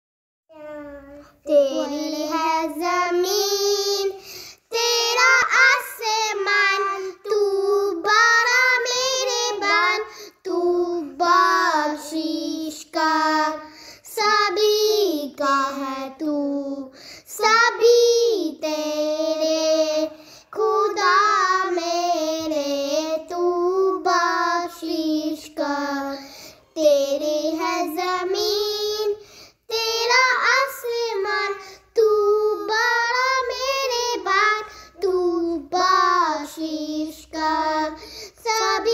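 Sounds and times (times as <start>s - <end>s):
child singing solo: 0.5s - 29.2s.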